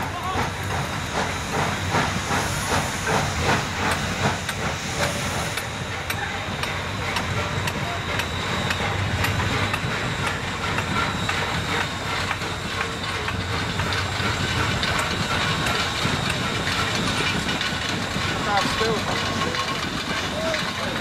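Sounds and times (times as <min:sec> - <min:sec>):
steam hiss: 0:00.0 - 0:21.0
steam locomotive rolling past: 0:00.0 - 0:21.0
wheels clicking: 0:05.6 - 0:21.0.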